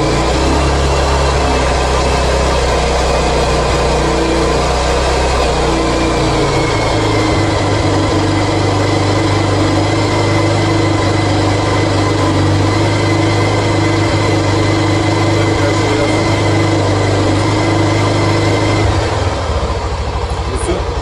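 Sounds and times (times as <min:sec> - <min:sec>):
thin high whine: 0:00.0 - 0:19.8
motorcycle engine idling: 0:00.0 - 0:21.0.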